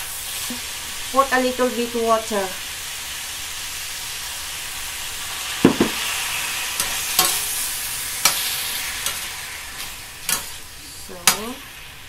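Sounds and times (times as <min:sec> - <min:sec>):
food sizzling in a pan: 0:00.0 - 0:12.0
metal spatula scraping a pan: 0:06.7 - 0:10.6.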